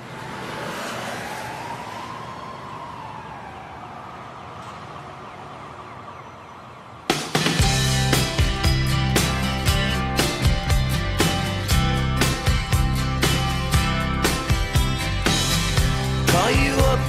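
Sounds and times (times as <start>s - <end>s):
siren wailing: 0.0s - 7.6s
music: 7.1s - 17.0s.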